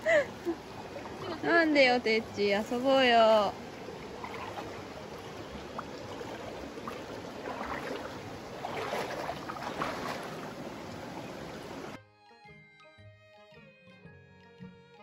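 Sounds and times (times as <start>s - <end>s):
stream running over rocks: 0.0s - 12.0s.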